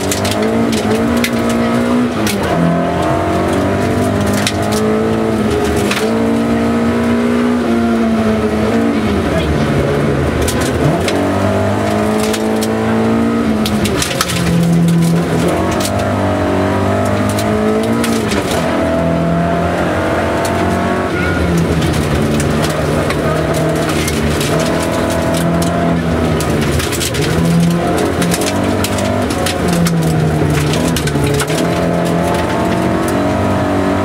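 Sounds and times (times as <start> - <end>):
rally car engine revving: 0.0 - 34.0
gravel clattering under car: 9.2 - 19.2, 21.4 - 34.0.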